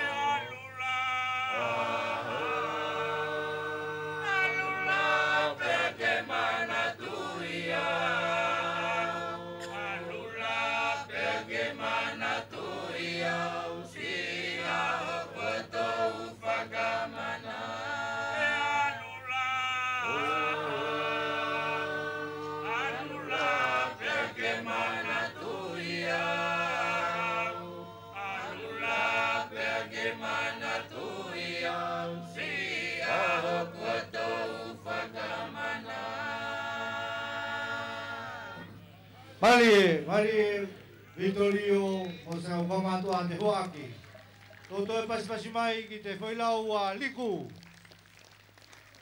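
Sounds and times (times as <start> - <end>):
men's chorus chanting: 0.0 - 38.9.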